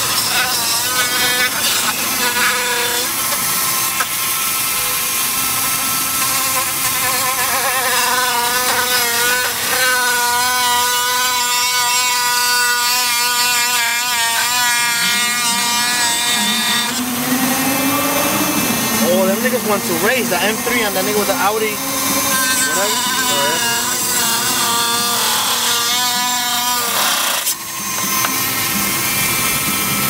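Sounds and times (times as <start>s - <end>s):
rotary tool cutting plastic: 0.0s - 30.0s.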